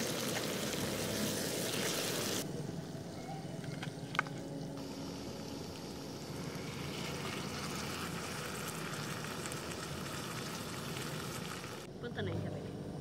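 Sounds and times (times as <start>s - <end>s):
fish sizzling in frying pan: 0.0s - 2.4s, 4.8s - 11.9s.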